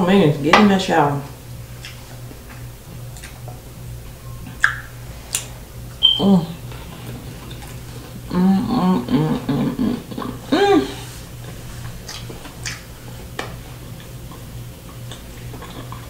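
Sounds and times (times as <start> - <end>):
mouth clicks from chewing: 4.6 - 6.2
woman humming: 6.0 - 6.7, 8.2 - 11.2.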